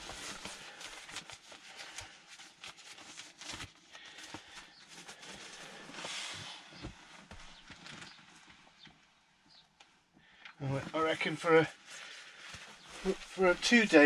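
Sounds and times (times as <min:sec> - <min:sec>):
dry bag fabric rustling: 0:00.0 - 0:08.2, 0:11.1 - 0:14.0.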